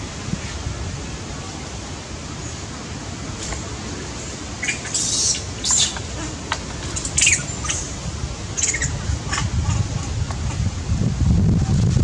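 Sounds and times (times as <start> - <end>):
monkeys squeaking: 4.6 - 6.3, 6.9 - 8.0, 8.6 - 9.5.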